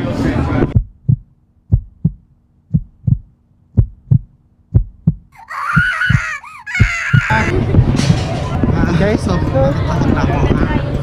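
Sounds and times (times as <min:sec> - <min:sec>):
heartbeat thumps: 0:00.7 - 0:08.2.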